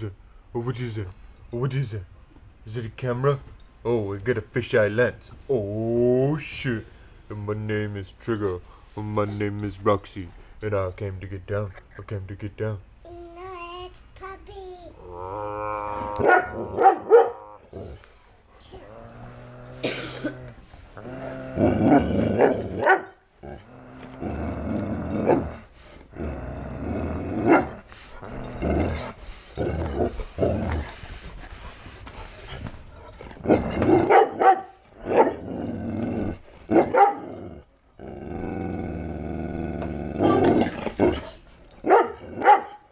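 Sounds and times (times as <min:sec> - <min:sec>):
dog growling: 0:15.0 - 0:34.2, 0:34.9 - 0:42.5
dog barking: 0:16.2 - 0:17.5, 0:22.4 - 0:23.2, 0:34.0 - 0:35.4, 0:36.8 - 0:37.3, 0:41.8 - 0:42.9.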